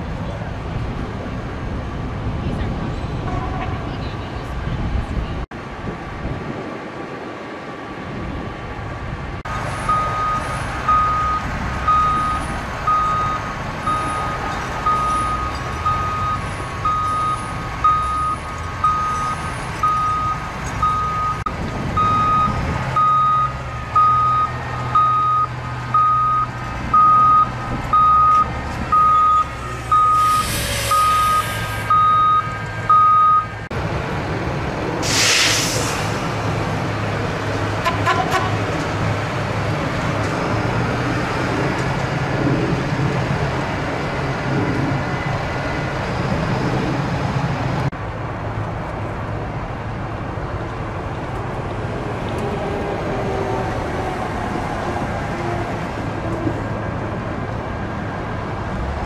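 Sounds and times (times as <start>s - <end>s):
diesel engine running: 9.5s - 47.9s
backup alarm beeping: 9.9s - 33.5s
short bursts of hiss: 30.1s - 31.9s, 35.0s - 36.2s.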